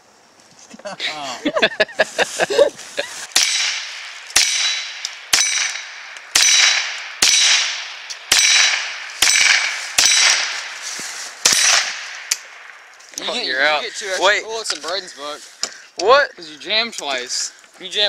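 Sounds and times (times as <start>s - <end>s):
rifle shots: 3.3s - 10.8s, 11.4s - 12.7s
bullet clanging on steel target: 3.4s - 10.4s.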